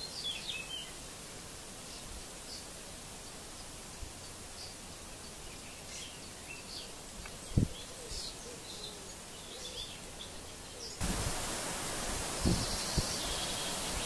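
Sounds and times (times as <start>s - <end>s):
steady outdoor hiss: 0.0s - 14.0s
faint bird chirps: 1.8s - 11.0s, 12.4s - 14.0s.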